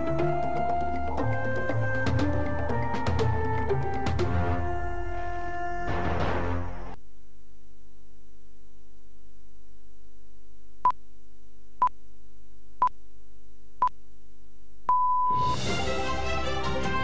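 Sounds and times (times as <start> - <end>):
longer beep: 14.9 - 15.5
short electronic beeps: 14.9 - 15.5.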